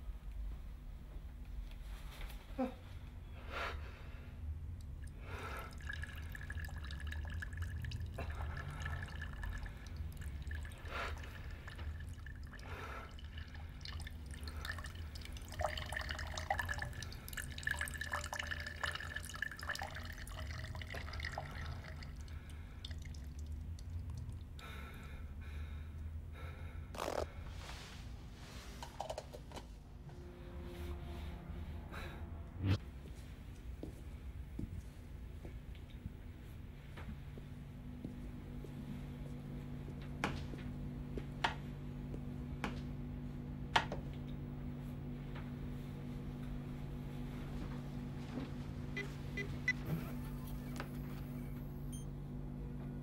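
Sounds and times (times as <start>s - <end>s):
steady low hum: 0.0s - 53.0s
liquid dripping and trickling: 4.8s - 24.6s.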